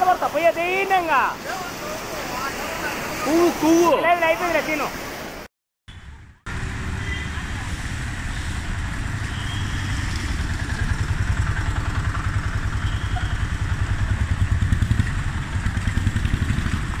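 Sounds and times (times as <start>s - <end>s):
heavy rain hissing: 0.0s - 5.5s
road traffic rumbling: 0.0s - 17.0s.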